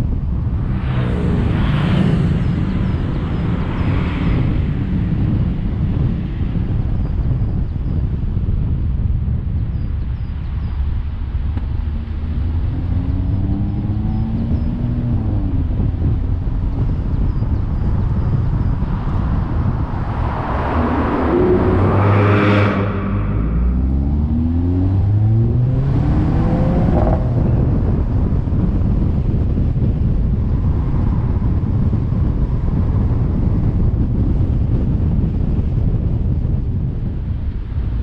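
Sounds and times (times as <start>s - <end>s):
tyre and wind noise: 0.0s - 38.0s
car engine pulling hard: 11.4s - 35.4s
car swishing past: 18.9s - 27.6s.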